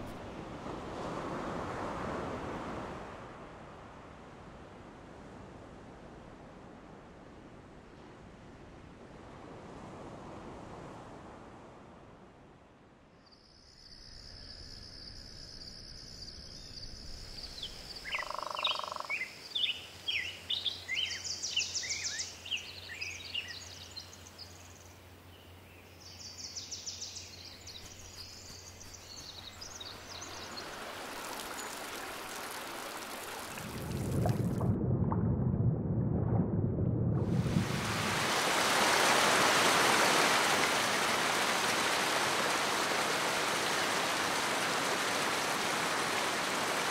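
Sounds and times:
birds chirping: 25.8s - 32.6s
waterfall rushing: 28.9s - 34.1s, 37.4s - 46.9s
low rumble: 33.7s - 38.1s.

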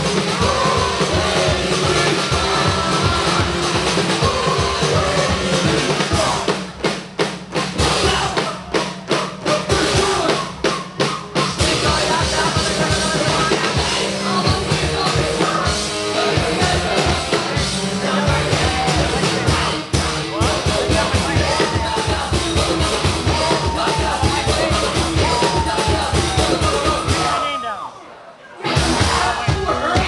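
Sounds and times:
person singing: 0.0s - 6.6s, 11.6s - 27.4s
live rock band playing: 0.0s - 27.5s, 28.6s - 30.0s.

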